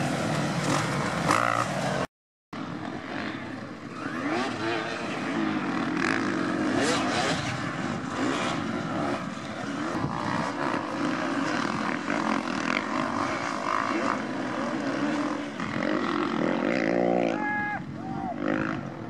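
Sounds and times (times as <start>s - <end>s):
dirt bike engines revving: 0.0s - 19.0s.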